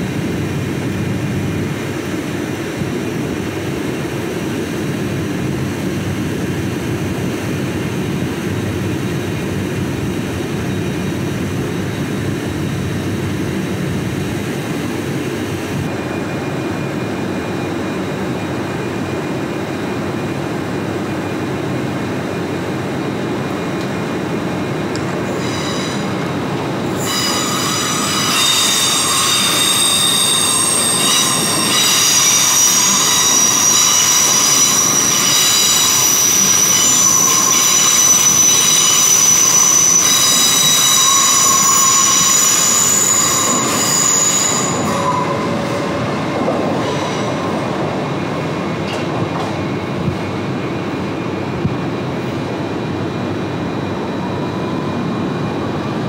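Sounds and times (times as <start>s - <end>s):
train running rumble: 0.0s - 56.0s
train wheels squealing on rails: 15.8s - 56.0s.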